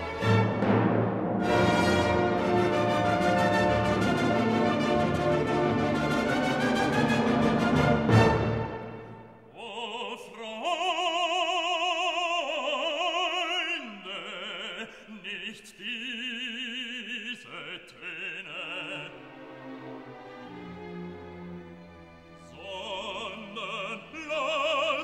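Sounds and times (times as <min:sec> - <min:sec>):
soft classical accompaniment: 0:00.0 - 0:09.5, 0:19.0 - 0:25.0
operatic singing: 0:01.4 - 0:25.0.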